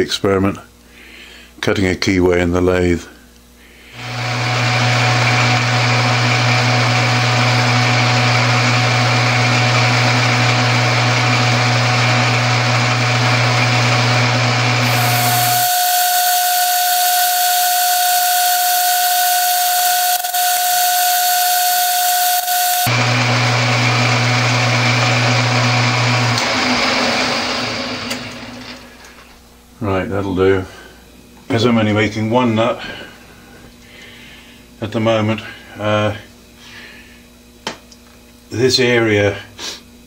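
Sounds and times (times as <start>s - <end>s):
metal lathe running: 4.0s - 28.8s
high whine: 14.8s - 23.2s.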